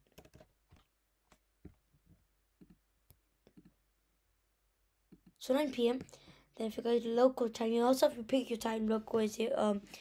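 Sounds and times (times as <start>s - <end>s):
keyboard and mouse clicks: 0.0s - 3.8s, 5.1s - 5.4s.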